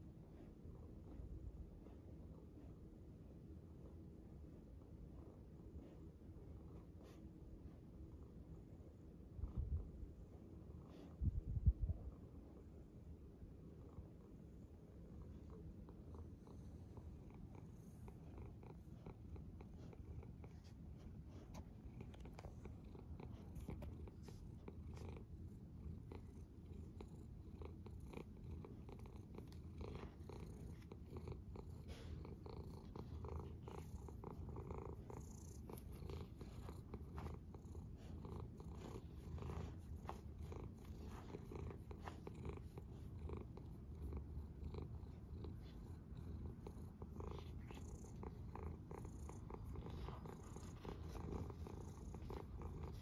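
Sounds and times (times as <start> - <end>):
cat purring: 4.7 - 53.0
rustling of fur: 16.1 - 53.0.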